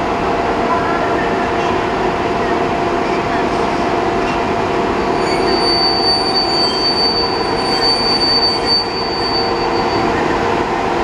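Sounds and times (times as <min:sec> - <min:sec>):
electric train hum and rumble: 0:00.0 - 0:11.0
high-pitched wheel squeal: 0:05.0 - 0:10.5.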